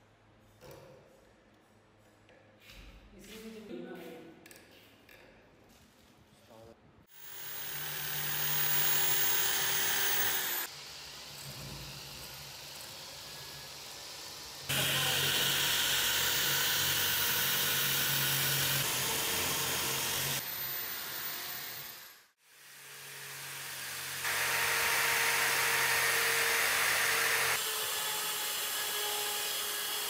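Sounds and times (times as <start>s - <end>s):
rotary tool grinding metal: 7.2s - 22.4s.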